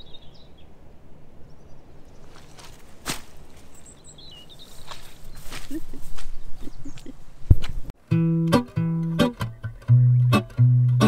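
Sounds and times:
birds chirping faintly: 0.0s - 8.0s
boot footsteps on grass: 2.2s - 7.9s.

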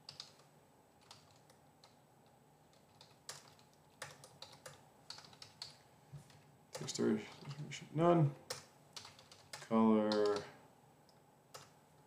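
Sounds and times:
typing on computer keyboard: 0.0s - 2.0s, 2.7s - 7.7s, 8.5s - 10.5s, 11.5s - 11.8s.

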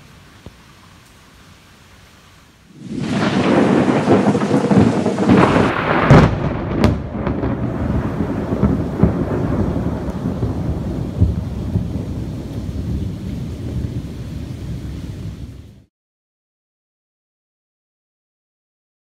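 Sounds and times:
thunderclap with long rumble: 2.8s - 15.9s.

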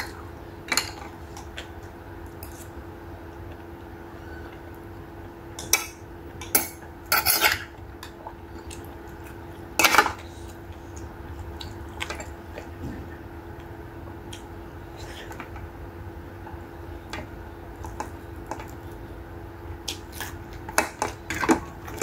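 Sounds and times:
soft clicks of eating by hand: 14.3s - 14.5s, 17.1s - 19.0s.

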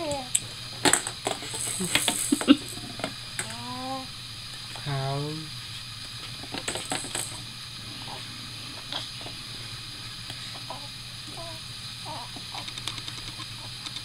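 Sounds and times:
plastic rattle balls clicking: 0.9s - 3.6s, 6.5s - 7.4s.

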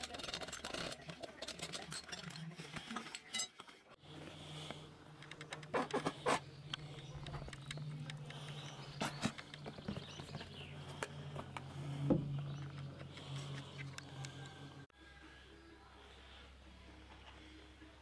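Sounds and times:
steady low hum: 4.0s - 18.0s.

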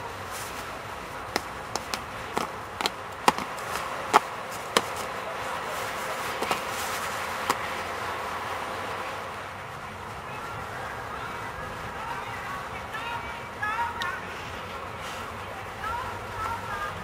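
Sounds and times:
steady outdoor hiss: 0.0s - 17.0s
sharp slaps and knocks: 1.4s - 5.1s, 6.4s - 6.7s.

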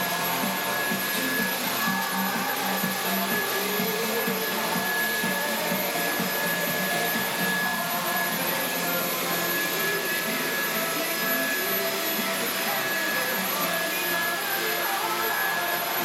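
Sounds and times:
vacuum cleaner motor whine: 0.0s - 16.0s.

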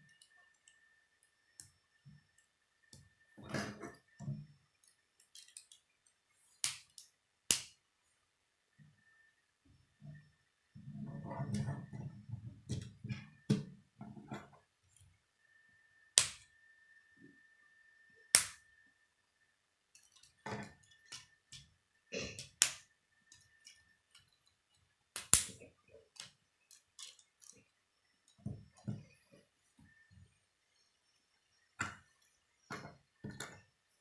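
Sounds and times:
plastic parts knocking and rattling: 3.4s - 5.9s, 32.7s - 33.8s.

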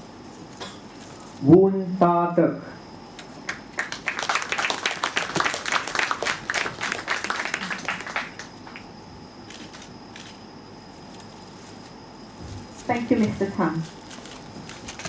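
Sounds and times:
audience applauding: 3.5s - 8.8s.

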